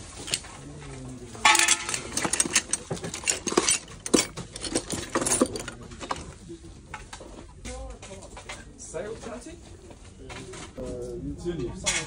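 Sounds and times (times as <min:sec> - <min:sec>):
metal tools clinking: 0:00.0 - 0:07.0.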